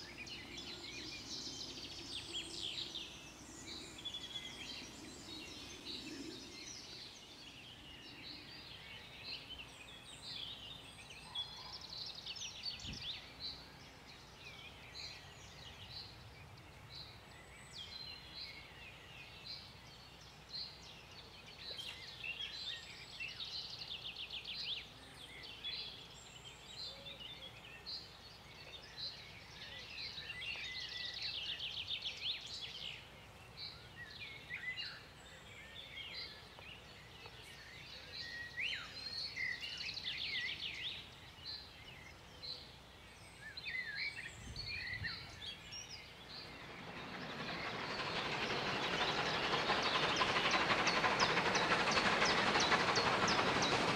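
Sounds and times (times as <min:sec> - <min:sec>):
birds chirping and trilling: 0:00.0 - 0:24.6, 0:25.3 - 0:53.9
steam train hiss: 0:44.7 - 0:53.9.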